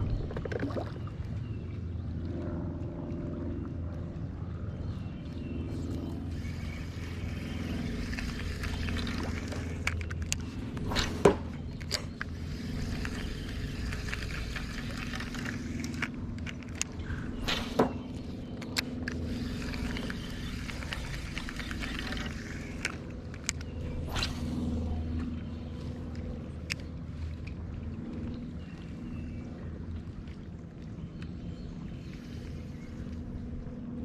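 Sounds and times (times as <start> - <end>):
steady low hum: 0.0 - 34.0
fishing reel clicks: 6.3 - 10.8, 11.7 - 17.4, 18.5 - 24.5.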